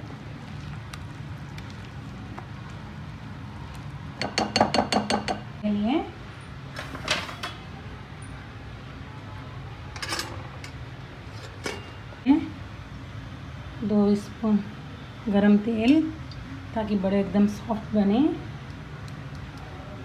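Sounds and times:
kitchen utensils clinking: 6.8s - 7.6s, 10.0s - 12.1s
utensils clattering: 6.8s - 7.6s, 10.0s - 12.0s.

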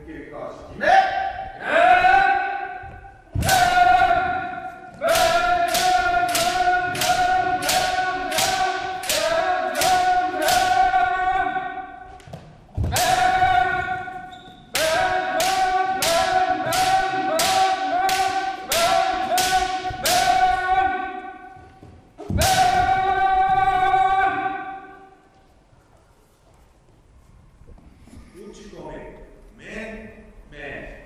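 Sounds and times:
long held shout: 0.8s - 2.8s, 3.4s - 12.0s, 12.9s - 21.6s, 22.2s - 25.2s
bamboo sword strikes: 5.1s - 10.8s, 14.8s - 20.5s.

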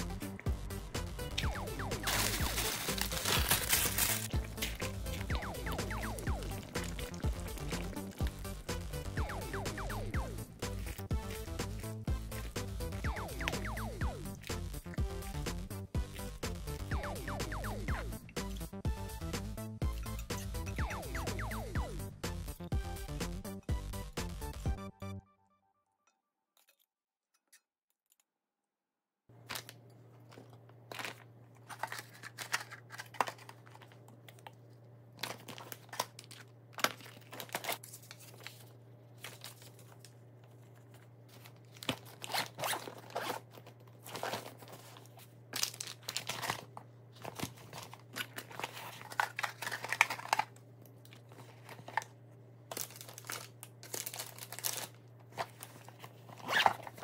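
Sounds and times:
bags rustling: 2.0s - 5.1s.

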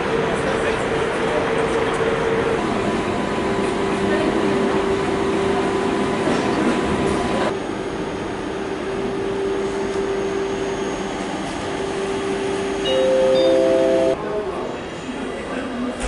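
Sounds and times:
electric train humming: 0.0s - 14.4s
noisy station background: 0.0s - 16.0s.

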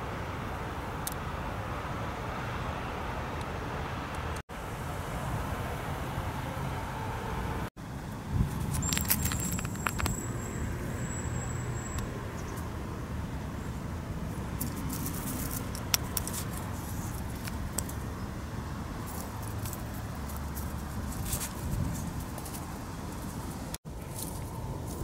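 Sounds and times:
dry grass rustling and crackling: 8.3s - 10.3s, 14.2s - 25.0s.

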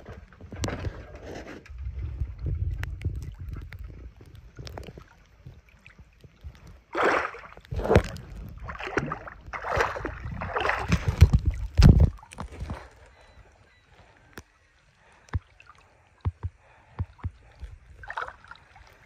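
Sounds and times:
wind rumble on microphone: 0.0s - 13.3s
paddle splashing in water: 3.2s - 13.2s, 15.1s - 19.0s.

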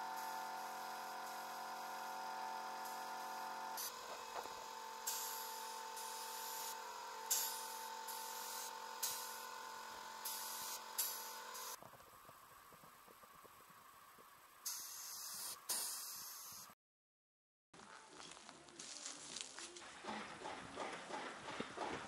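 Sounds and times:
spray gun hissing: 0.0s - 11.8s, 14.6s - 16.7s
steady machine hum: 0.0s - 15.3s.

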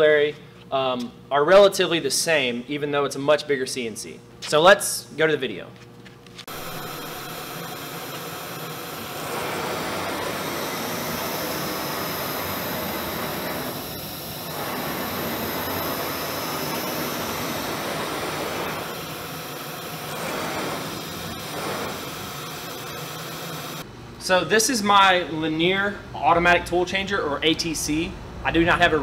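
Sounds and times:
router gantry whirring: 6.5s - 23.8s.

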